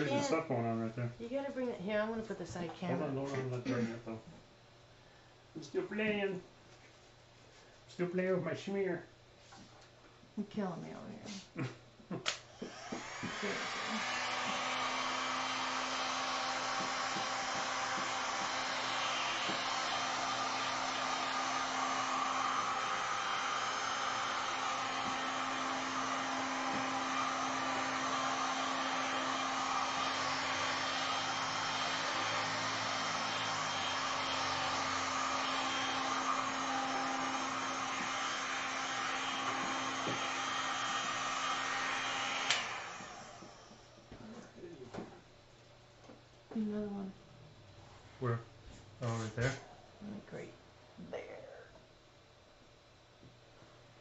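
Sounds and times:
heat gun blowing air: 12.3s - 44.1s.

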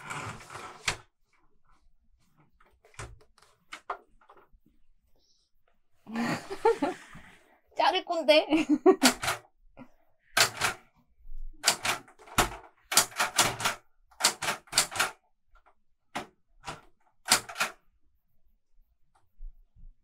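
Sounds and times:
typewriter keys striking: 9.0s - 9.4s, 10.4s - 10.8s, 11.6s - 15.2s, 16.2s - 17.8s.

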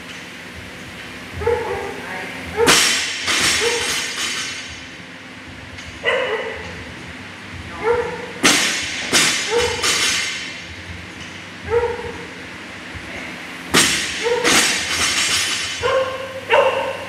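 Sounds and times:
dog yipping: 6.0s - 6.7s, 11.7s - 12.2s, 15.8s - 17.0s
barbell thudding on gym floor: 7.8s - 12.3s, 13.7s - 16.2s.

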